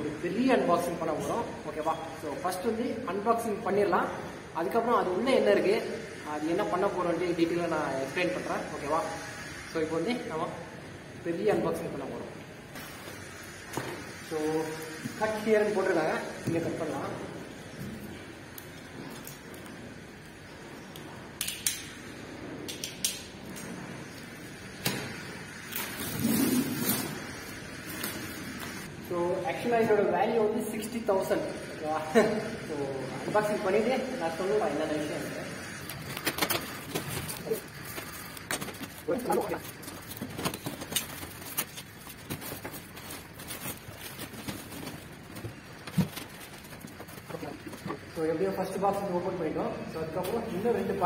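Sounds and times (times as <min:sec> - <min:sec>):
packing tape being cut and ripped: 0:24.8 - 0:28.9, 0:35.8 - 0:48.0
plastic wrap and foam rustling: 0:33.3 - 0:49.1.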